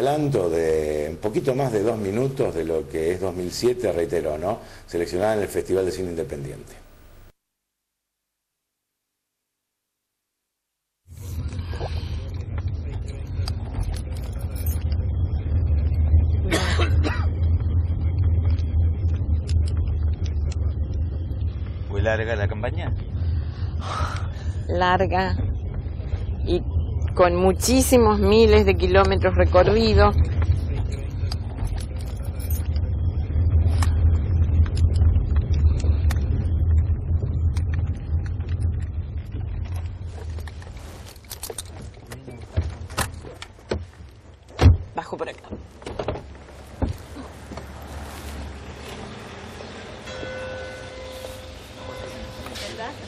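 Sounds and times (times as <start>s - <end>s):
car cabin rumble: 11.1s - 51.1s
person coughing: 16.5s - 17.3s.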